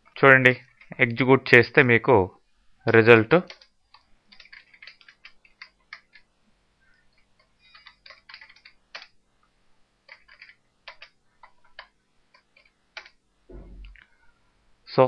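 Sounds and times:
keyboard typing: 0:00.5 - 0:01.2, 0:03.4 - 0:06.3, 0:06.9 - 0:09.2, 0:10.0 - 0:13.2.

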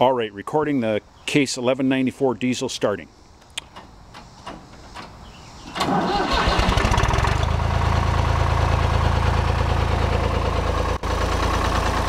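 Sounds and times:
diesel engine starting: 0:04.9 - 0:12.0.

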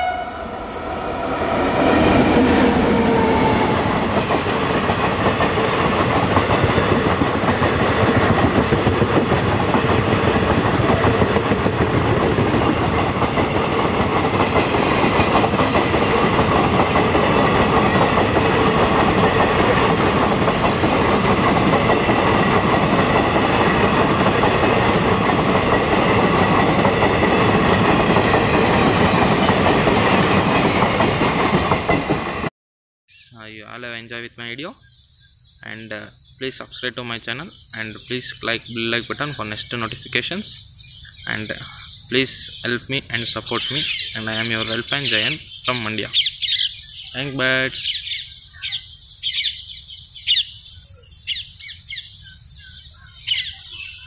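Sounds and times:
train rushing past: 0:00.0 - 0:32.5, 0:35.6 - 0:50.6
small birds chirping: 0:33.1 - 0:54.0
steady high hiss: 0:33.3 - 0:46.5.

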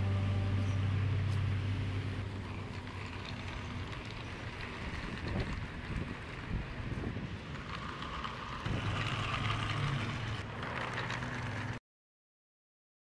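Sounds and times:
toy truck rolling on tiles: 0:02.3 - 0:11.8
wind buffeting microphone: 0:03.5 - 0:10.4.

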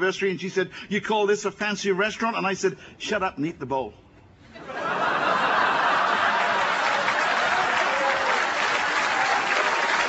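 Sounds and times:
audience laughing: 0:04.5 - 0:09.3
audience applauding: 0:05.2 - 0:10.0.

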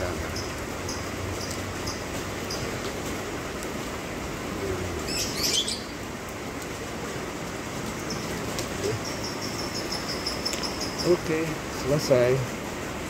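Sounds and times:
rain falling on wet ground: 0:00.0 - 0:13.0
cricket chirping: 0:08.0 - 0:11.5.

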